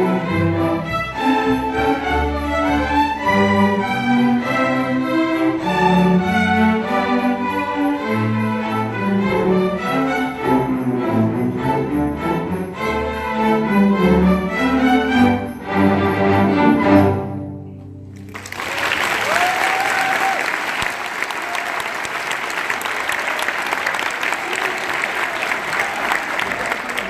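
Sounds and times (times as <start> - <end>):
string orchestra playing: 0.0 - 18.3
audience applause: 18.1 - 27.0.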